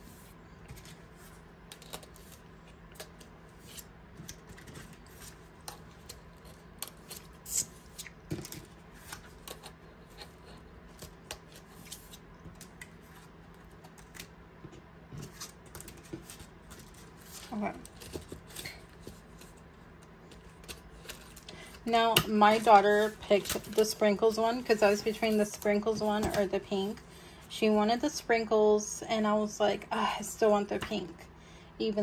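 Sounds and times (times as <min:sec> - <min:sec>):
plastic envelopes rustling: 0:15.2 - 0:27.1.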